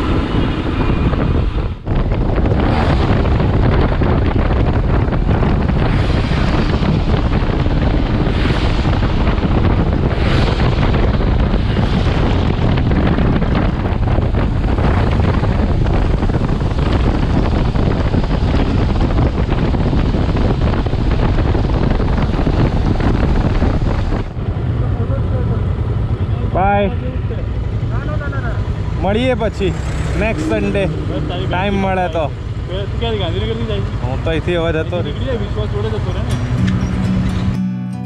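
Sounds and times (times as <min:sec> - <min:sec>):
motorcycle engine: 0:00.0 - 0:37.6
wind buffeting microphone: 0:00.0 - 0:37.6.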